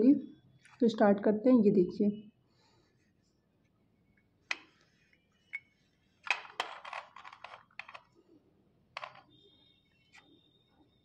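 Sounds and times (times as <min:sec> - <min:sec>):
slate pencils clicking: 0:06.3 - 0:08.1.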